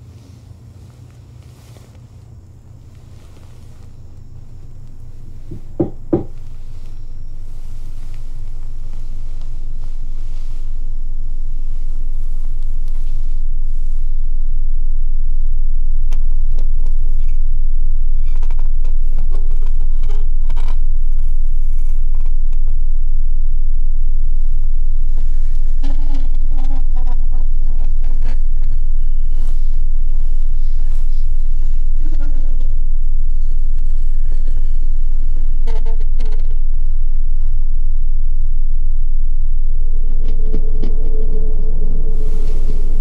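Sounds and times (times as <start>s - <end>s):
faint tones: 0.0s - 43.0s
low rumbling drone: 0.0s - 43.0s.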